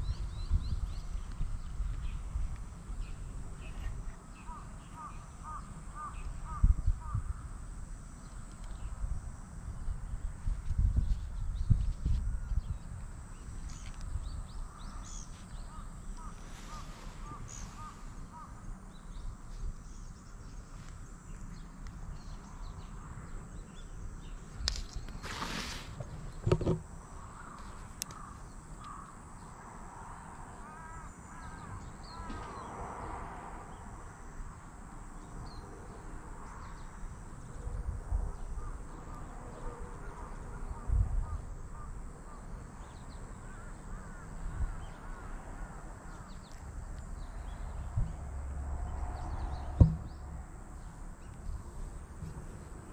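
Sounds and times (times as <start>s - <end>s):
crows cawing: 4.5s - 7.3s, 15.7s - 18.6s, 27.2s - 29.2s, 30.6s - 32.4s, 43.5s - 44.7s
rubbing noise on microphone: 25.2s - 26.8s.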